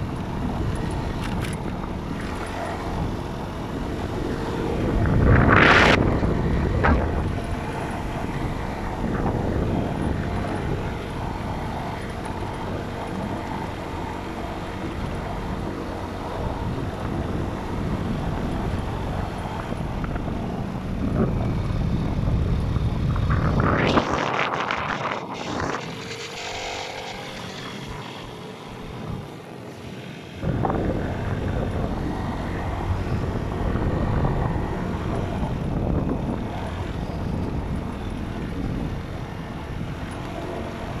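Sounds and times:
motorcycle engine running: 0.0 - 29.5
wind rushing over microphone: 0.0 - 41.0.

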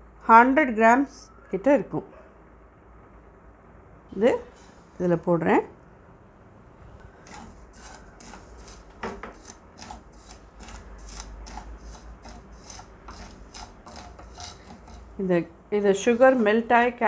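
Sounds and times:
spoon scraping granulated sugar: 6.8 - 15.4.

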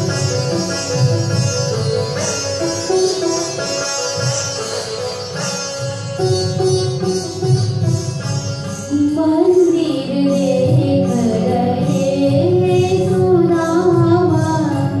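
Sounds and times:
woman singing over loudspeaker: 8.9 - 15.0.

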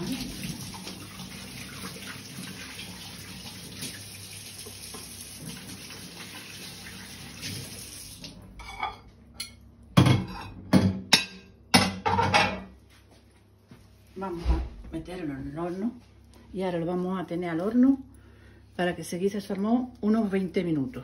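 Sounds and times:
tap water running on hands: 0.0 - 8.4.

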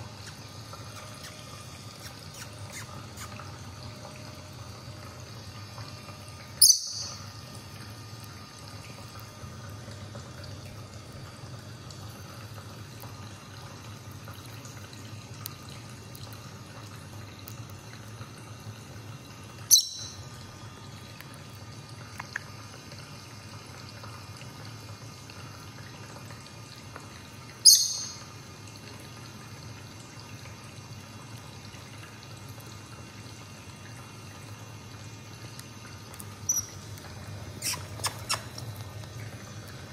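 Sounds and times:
bird high-pitched chirps: 6.6 - 7.2, 19.7 - 20.2, 27.6 - 28.2, 36.5 - 36.8, 37.6 - 38.5.

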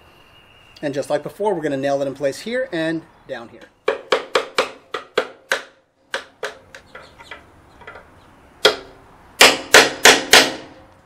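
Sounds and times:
hammer driving nails into wood: 3.9 - 6.8, 8.6 - 10.8.

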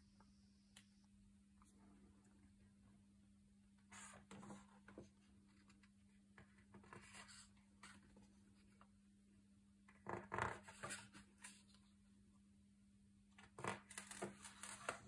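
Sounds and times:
faint steady hum: 0.0 - 15.0
book pages turning: 13.4 - 15.0.

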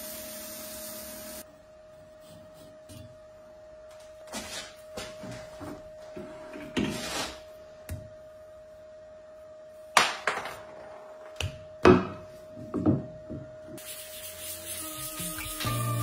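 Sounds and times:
music: 14.1 - 16.0.

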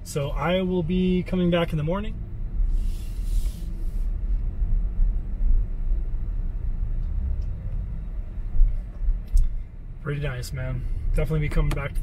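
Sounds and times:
tyres rumbling on asphalt: 0.0 - 12.0
brief hiss: 2.7 - 4.1.

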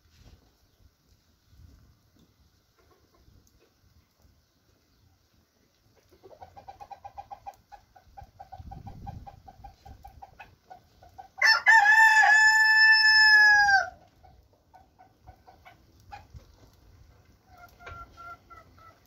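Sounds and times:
chickens clucking: 2.6 - 5.0, 5.8 - 11.4, 14.0 - 19.0
rooster crowing: 11.4 - 14.0.

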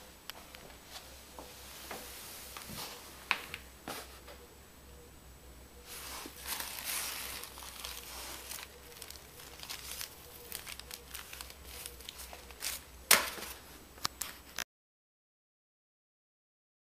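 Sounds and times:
loud paper crackle: 5.9 - 14.5
paper crinkling and rustling: 5.9 - 14.6.

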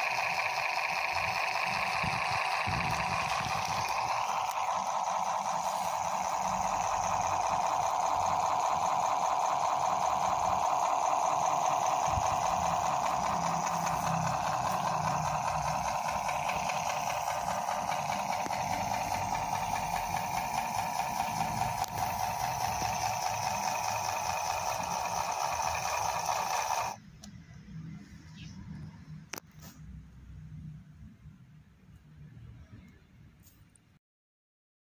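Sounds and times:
toy truck motor whining: 0.0 - 27.0.

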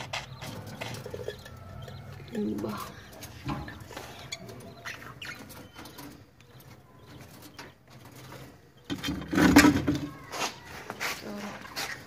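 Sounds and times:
budgerigars chirping: 0.0 - 9.1.

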